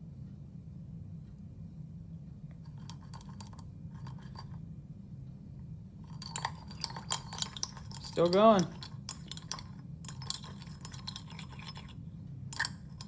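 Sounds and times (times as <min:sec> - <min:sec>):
low steady hum: 0:00.0 - 0:13.0
probe scraping ice in glass: 0:06.1 - 0:13.0.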